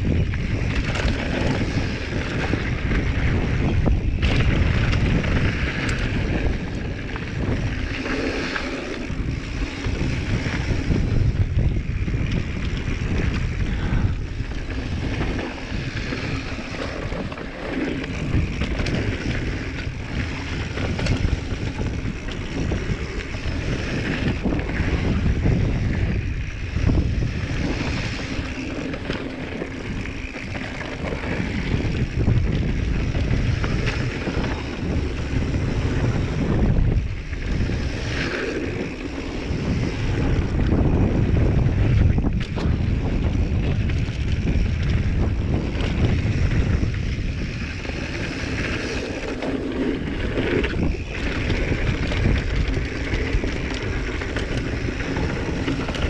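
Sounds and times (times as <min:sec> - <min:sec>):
bike knocking and clattering: 0:00.0 - 0:38.0
tyres rolling over dirt: 0:00.0 - 0:56.0
wind rushing over microphone: 0:00.0 - 0:56.0.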